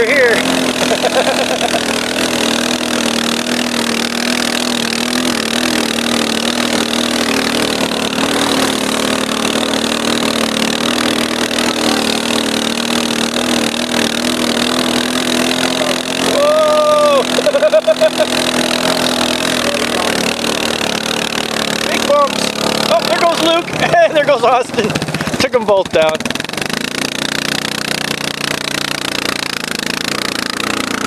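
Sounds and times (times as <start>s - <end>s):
atv engine running: 0.0s - 31.0s
person shouting: 15.6s - 17.7s.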